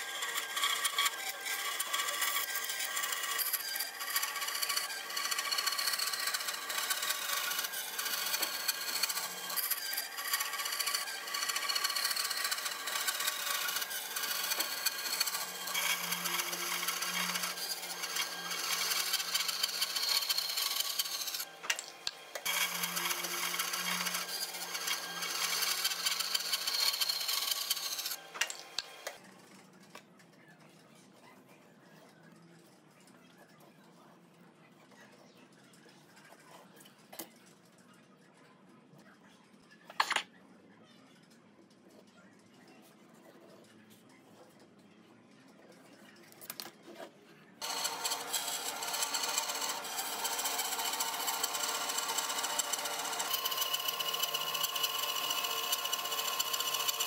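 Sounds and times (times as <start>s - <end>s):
woodworking tool cutting hardwood: 0.0s - 28.8s, 47.6s - 57.0s.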